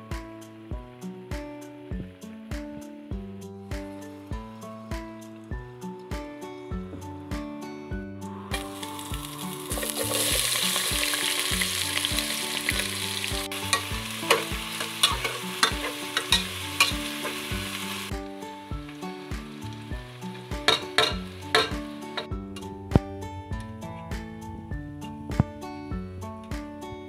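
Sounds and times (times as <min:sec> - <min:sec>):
background music: 0:00.0 - 0:27.0
onions sizzling in oil: 0:08.5 - 0:22.3
metal spoon scraping a pot: 0:13.7 - 0:17.5.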